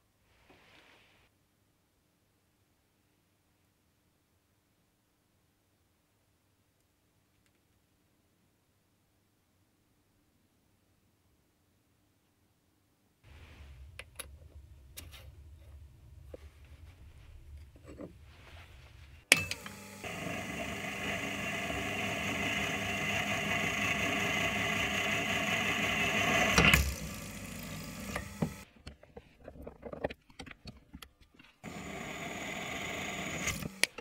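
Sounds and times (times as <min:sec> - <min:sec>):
benchtop drilling machine running: 0:19.3 - 0:28.7, 0:31.6 - 0:34.0.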